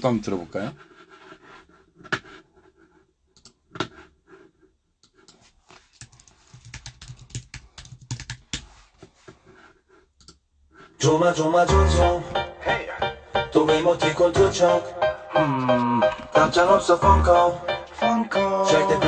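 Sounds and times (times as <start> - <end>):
keyboard typing: 5.0 - 8.7.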